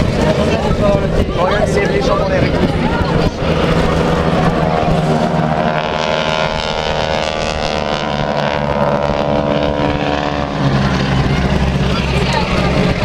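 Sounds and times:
propeller planes droning past: 0:00.0 - 0:13.0.

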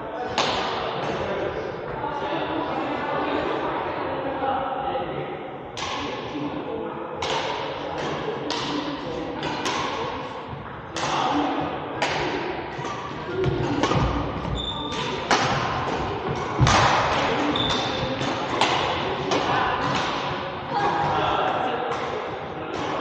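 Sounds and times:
racket hitting shuttlecock: 0:00.3 - 0:01.2, 0:05.8 - 0:06.3, 0:07.2 - 0:23.0
sneaker squeaks on wooden floor: 0:13.4 - 0:15.2, 0:17.5 - 0:18.0.

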